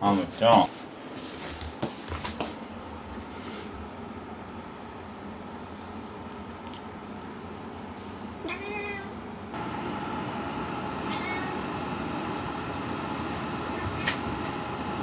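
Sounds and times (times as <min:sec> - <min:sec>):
cat meowing: 0:08.4 - 0:09.2, 0:11.1 - 0:11.6.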